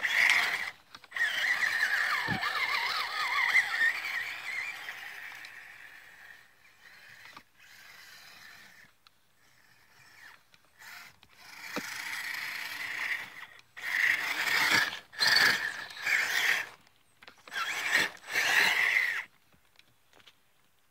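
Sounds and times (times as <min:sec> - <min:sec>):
tyres churning through snow: 0:00.0 - 0:08.8, 0:10.9 - 0:16.8, 0:17.4 - 0:19.3
electric motor and gears whining: 0:00.0 - 0:19.4.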